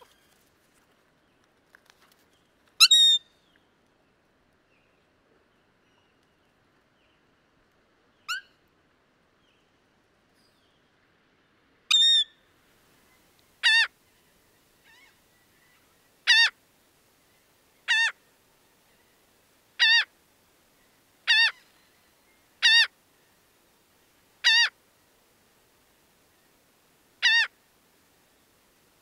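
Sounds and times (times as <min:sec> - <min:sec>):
gull calling: 0:16.3 - 0:16.5, 0:19.8 - 0:20.1, 0:21.3 - 0:21.6, 0:22.6 - 0:22.9, 0:24.4 - 0:24.7, 0:27.2 - 0:27.5.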